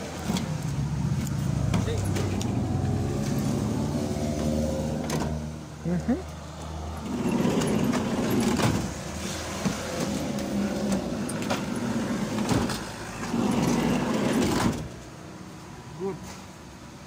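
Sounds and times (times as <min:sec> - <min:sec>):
sliding door rumbling on track: 0:07.0 - 0:15.0.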